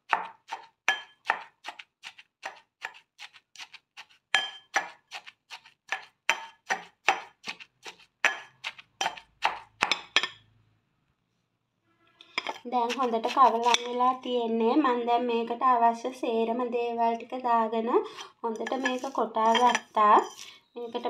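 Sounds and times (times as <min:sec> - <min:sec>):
metal pestle pounding in mortar: 0:00.1 - 0:03.8, 0:04.4 - 0:10.4, 0:12.4 - 0:14.2, 0:18.6 - 0:20.4.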